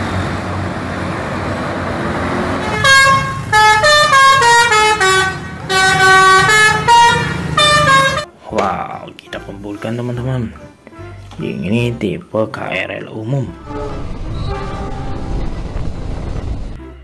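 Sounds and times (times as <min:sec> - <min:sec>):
bus engine and road noise: 0:00.0 - 0:08.3, 0:13.5 - 0:17.0
musical bus horn tune: 0:02.5 - 0:08.4, 0:13.6 - 0:15.6.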